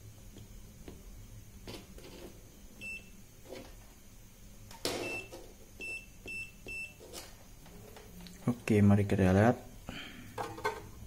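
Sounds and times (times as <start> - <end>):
multimeter beeping: 2.8 - 3.2, 4.9 - 7.0.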